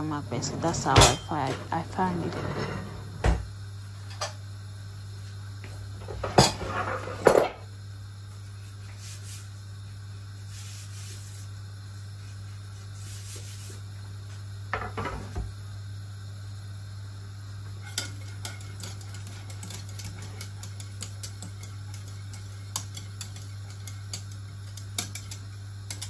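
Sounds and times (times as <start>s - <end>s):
kitchen utensils and pots clattering: 0.0s - 3.4s, 6.0s - 7.6s
steady low hum: 0.0s - 26.0s.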